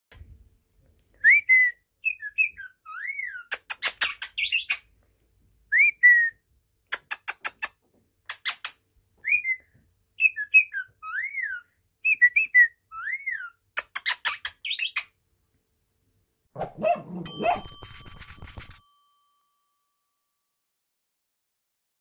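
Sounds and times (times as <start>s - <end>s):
parakeet whistling: 2.0s - 3.5s, 9.3s - 13.6s.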